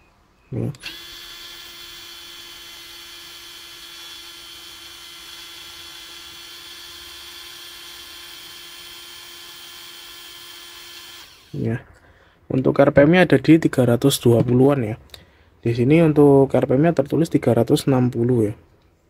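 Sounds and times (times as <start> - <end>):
cordless screwdriver whining: 0.8 - 11.6.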